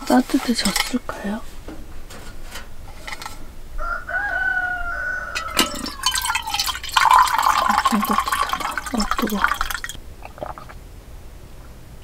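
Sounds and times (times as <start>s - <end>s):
water pouring into metal mug: 5.4s - 10.7s.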